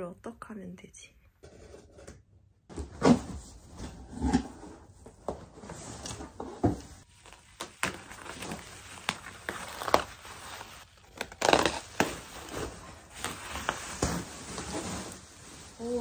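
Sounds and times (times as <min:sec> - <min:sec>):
bubble wrap popping: 0:07.0 - 0:16.0.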